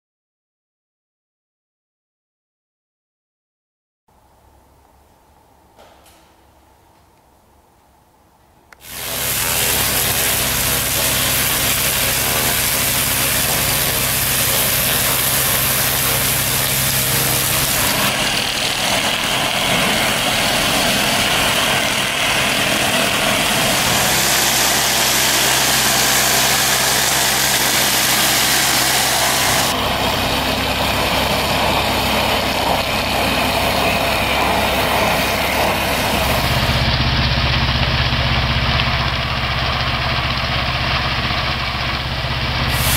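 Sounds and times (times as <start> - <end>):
water jet hissing: 8.8 - 36.9, 42.6 - 42.9
pump engine humming: 8.8 - 42.9.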